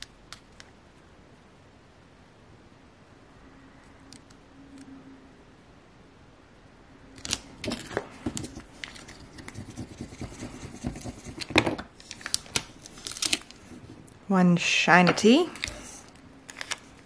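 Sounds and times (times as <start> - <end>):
squeegee scraping tape: 7.2 - 14.1
transfer tape peeling off: 12.0 - 13.6.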